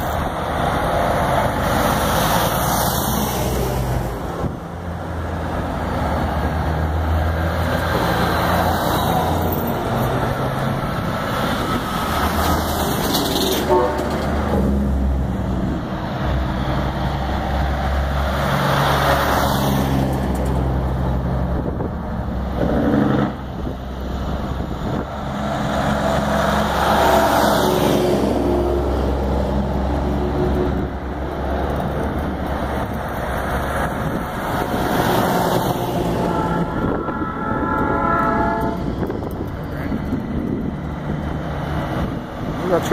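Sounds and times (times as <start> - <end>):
trucks driving past: 0.0 - 42.9
truck horn: 13.5 - 14.5, 35.9 - 39.2.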